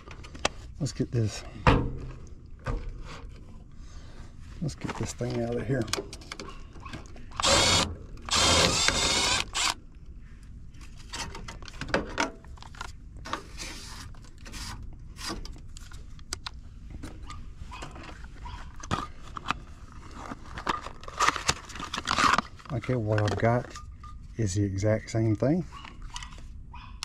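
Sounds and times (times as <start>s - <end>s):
clicks and rattles of tools: 4.8s - 9.8s
cordless drill running: 7.4s - 9.8s.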